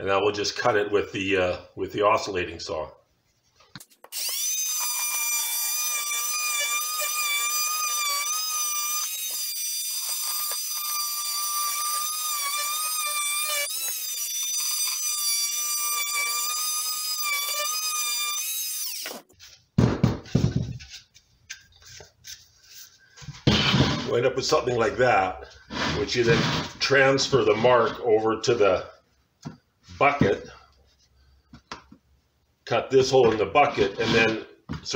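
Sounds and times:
multi-tool cutting pipe: 0:03.8 - 0:19.3.

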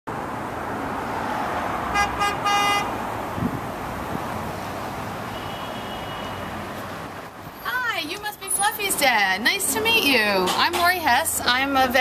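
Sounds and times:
street traffic noise: 0:00.1 - 0:12.0
car horn beeps: 0:01.9 - 0:02.9, 0:05.3 - 0:06.6.

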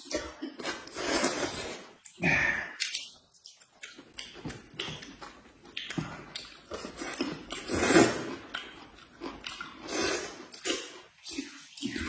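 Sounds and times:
wet chewing and lip smacks: 0:02.8 - 0:07.7, 0:08.4 - 0:09.9
noodle slurp: 0:06.8 - 0:08.5, 0:09.8 - 0:12.0.

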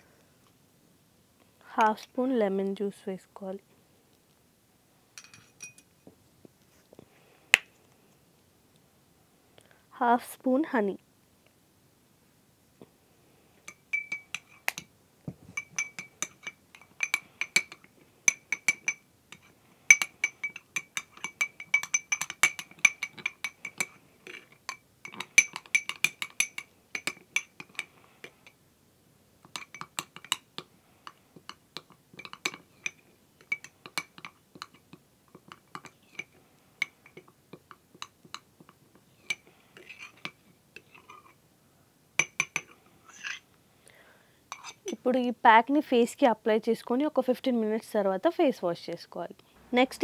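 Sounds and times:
metal spoon clinking on glass bowl: 0:05.2 - 0:05.9, 0:13.7 - 0:14.9, 0:15.6 - 0:28.6, 0:29.5 - 0:30.4, 0:32.2 - 0:34.8.

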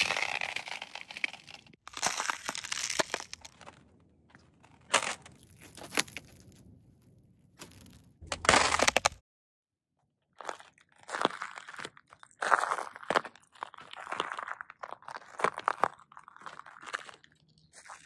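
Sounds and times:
sharp ice cracks: 0:00.0 - 0:03.8, 0:04.6 - 0:06.6, 0:07.6 - 0:09.2
ice crunching under boots: 0:00.0 - 0:06.7, 0:07.6 - 0:09.2, 0:10.4 - 0:18.0.

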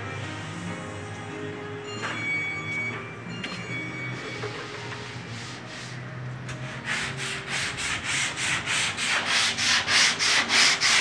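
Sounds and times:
sanding block rubbing: 0:06.7 - 0:11.0.

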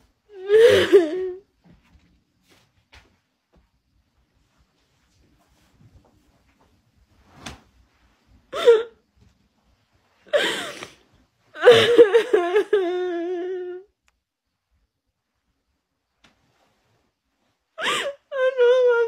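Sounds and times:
woman crying: 0:00.4 - 0:01.4, 0:11.6 - 0:13.9, 0:17.8 - 0:19.0.

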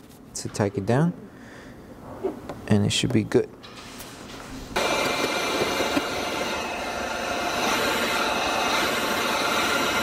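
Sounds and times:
heat gun blowing air: 0:04.8 - 0:10.0.

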